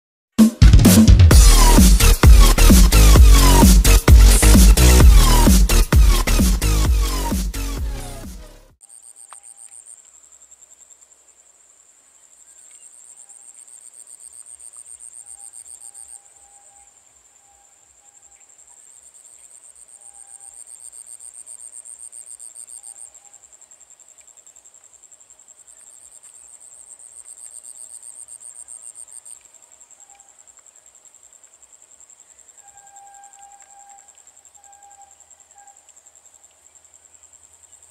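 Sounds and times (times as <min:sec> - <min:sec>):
insects chirring: 0:08.8 - 0:37.9
rapidly pulsing insect trill: 0:08.8 - 0:37.9.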